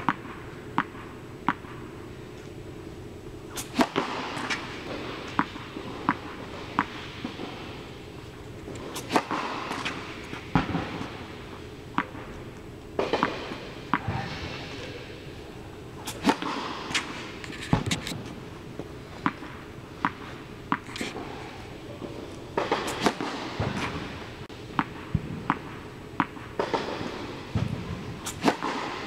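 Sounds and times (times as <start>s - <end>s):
racket hitting tennis ball: 0.0s - 2.6s, 3.4s - 15.0s, 15.9s - 29.0s
tennis ball bouncing: 0.0s - 2.6s, 3.4s - 14.3s, 16.0s - 21.3s, 22.0s - 29.0s.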